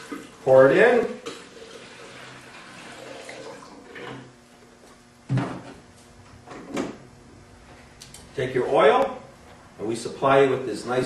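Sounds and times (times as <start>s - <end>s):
gasoline pouring into plastic pitcher: 1.2s - 4.2s.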